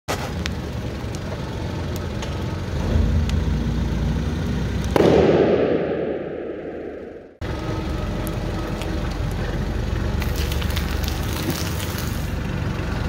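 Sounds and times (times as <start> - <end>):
heavy vehicle engine running low: 0.1 - 13.0
ball bursting with rushing air: 4.9 - 7.4.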